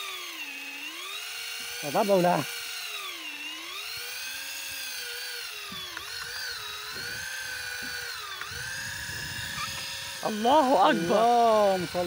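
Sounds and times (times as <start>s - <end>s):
fishing reel motor whining: 0.0s - 12.0s.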